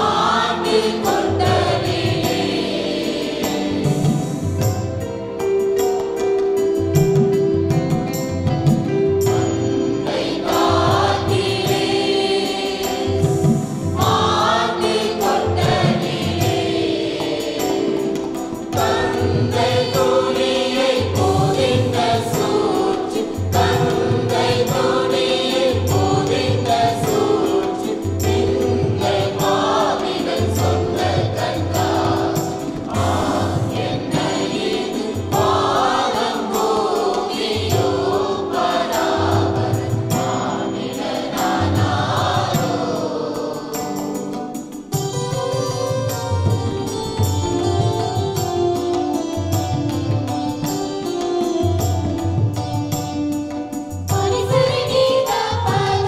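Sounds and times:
choir singing: 0.0s - 4.9s, 9.6s - 44.9s, 54.1s - 56.0s.

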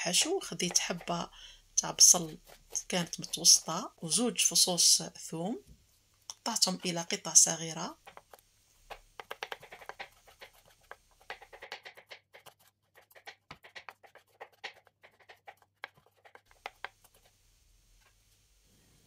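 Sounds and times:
knife chopping on wooden board: 8.0s - 17.0s.

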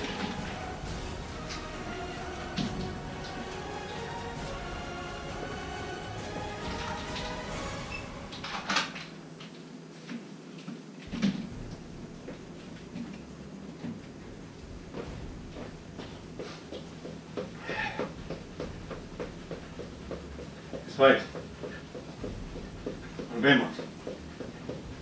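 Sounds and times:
footsteps on wooden floor: 2.4s - 4.6s, 11.1s - 25.0s
loud thumps: 11.1s - 13.4s, 14.2s - 25.0s.

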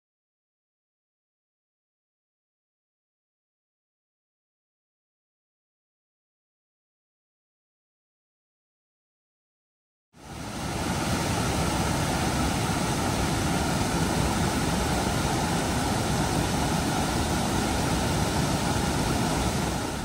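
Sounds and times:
creek rushing over rocks: 10.2s - 20.0s.

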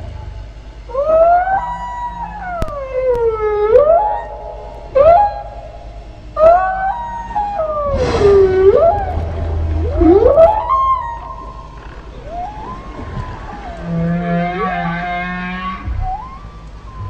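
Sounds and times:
whale song moaning calls: 0.0s - 17.0s.

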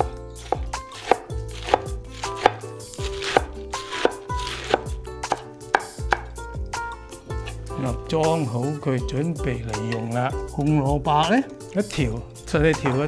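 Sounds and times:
cleaver chopping on wooden board: 0.0s - 6.4s.

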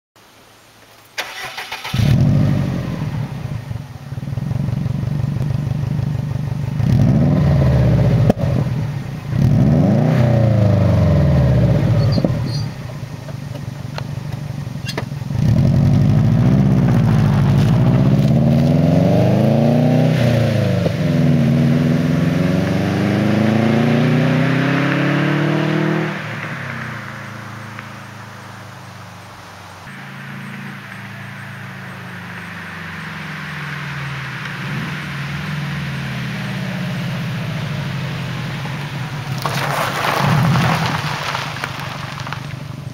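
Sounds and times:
engine starter cranking: 1.2s - 2.3s
car accelerating: 1.2s - 42.9s
car engine idling and revving: 1.2s - 42.9s.

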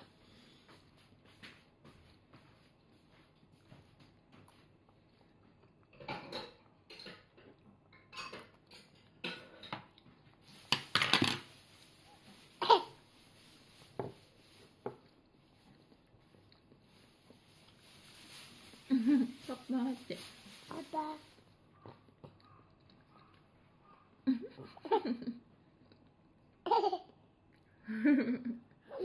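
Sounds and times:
cutlery clinking against bowl: 6.0s - 9.9s.

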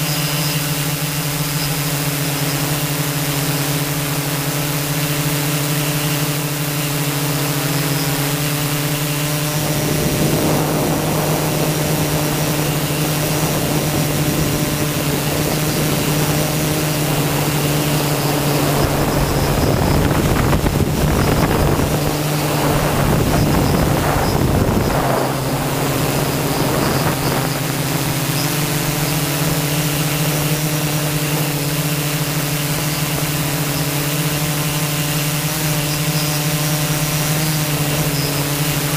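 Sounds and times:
drone propellers humming: 0.0s - 38.9s
wind on microphone: 0.1s - 38.9s.

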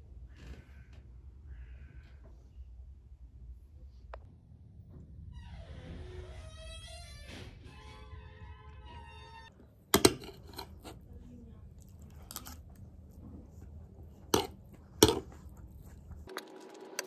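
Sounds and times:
dishes clattering: 10.0s - 11.0s, 14.3s - 15.3s.

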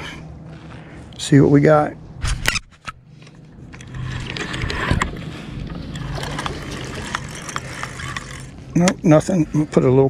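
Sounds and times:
steady low hum: 0.0s - 10.0s
crab trap scraping and rattling: 2.5s - 8.9s.

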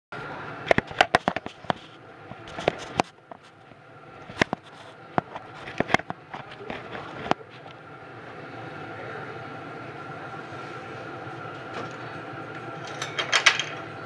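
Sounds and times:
faint steady hum: 0.2s - 14.0s
camera rubbing against leather: 4.2s - 7.3s.

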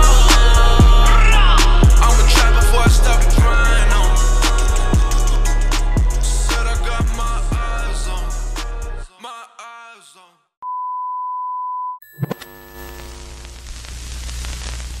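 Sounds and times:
music: 0.0s - 9.1s
steady test-tone beep: 10.6s - 13.1s
hissing static with low hum: 12.3s - 15.0s.

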